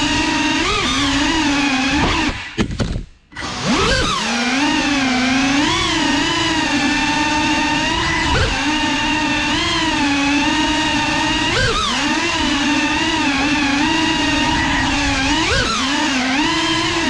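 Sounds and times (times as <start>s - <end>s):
quadcopter motors whining: 0.0s - 2.6s, 3.3s - 17.0s
sharp knocks: 2.0s - 3.1s.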